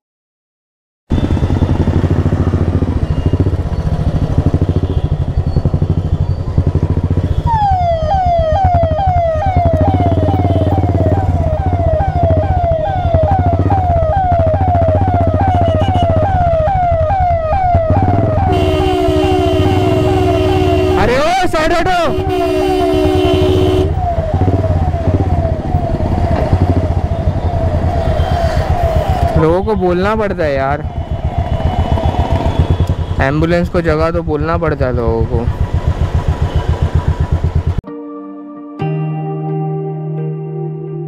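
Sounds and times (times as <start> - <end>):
motorcycle engine running: 1.1 - 21.0, 30.9 - 37.8
ambulance siren wailing: 1.1 - 33.5
steady horn: 18.4 - 21.3, 21.9 - 24.0.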